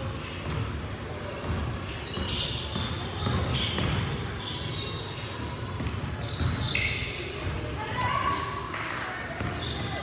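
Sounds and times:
sneaker squeaks: 0:00.1 - 0:10.0.

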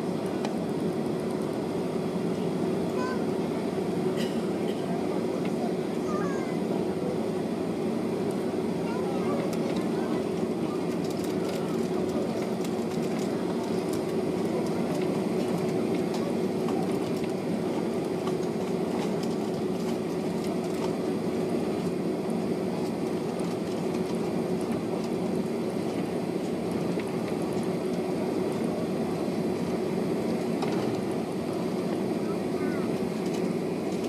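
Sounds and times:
jet engines humming: 0:00.0 - 0:34.0
wheels rolling with ticks and rattles: 0:08.9 - 0:21.1, 0:21.7 - 0:28.9, 0:29.6 - 0:34.0.

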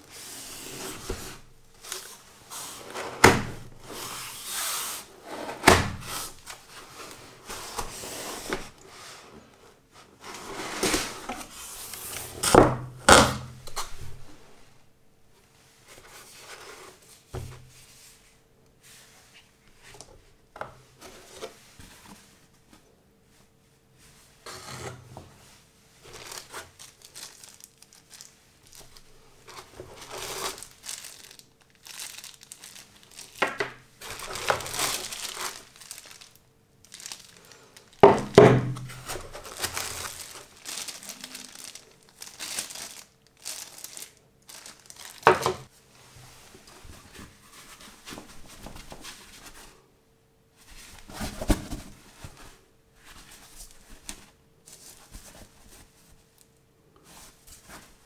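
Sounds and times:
plastic packaging crinkling: 0:26.0 - 0:45.7.

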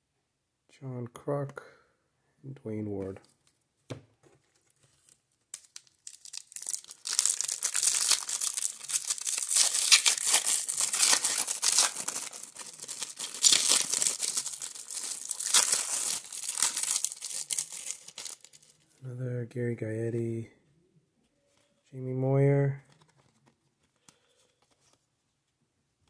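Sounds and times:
foil wrapper crinkling: 0:05.0 - 0:18.8.

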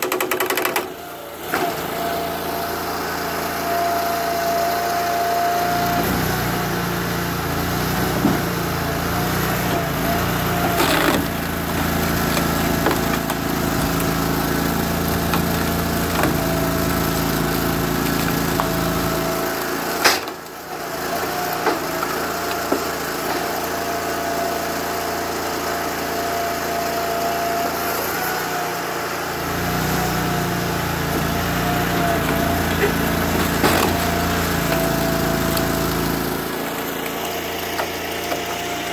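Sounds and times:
wood cracking and knocking: 0:00.0 - 0:00.9, 0:10.6 - 0:14.3, 0:32.0 - 0:38.6
engine running steadily: 0:00.0 - 0:38.9.

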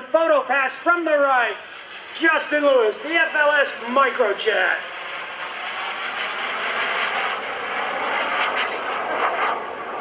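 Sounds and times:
jet flying past: 0:00.0 - 0:10.0.

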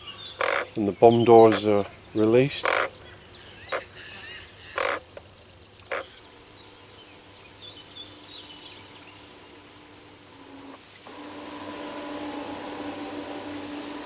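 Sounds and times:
birds chirping: 0:00.0 - 0:14.0
small electric motors whining: 0:07.9 - 0:14.0.

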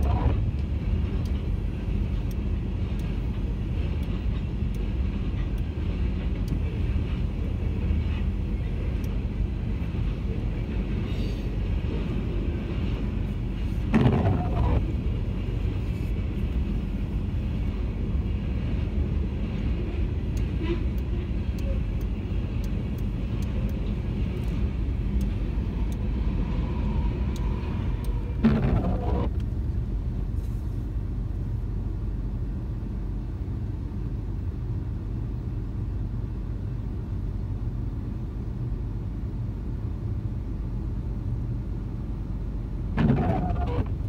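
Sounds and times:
freight train rolling past: 0:00.0 - 0:30.0.

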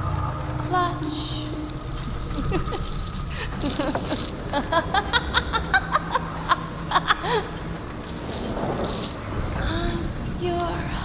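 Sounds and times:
woman laughing: 0:02.3 - 0:07.7.

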